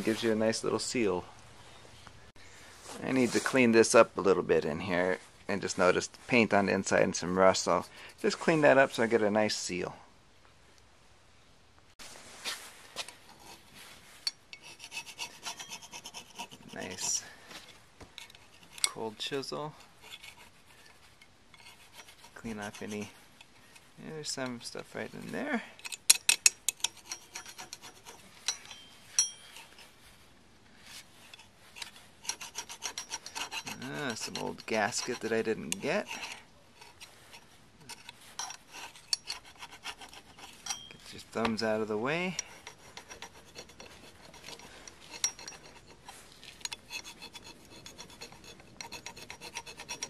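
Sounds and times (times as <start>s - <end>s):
chisel scraping metal flange: 13.2s - 17.3s, 18.2s - 29.9s, 31.2s - 50.0s.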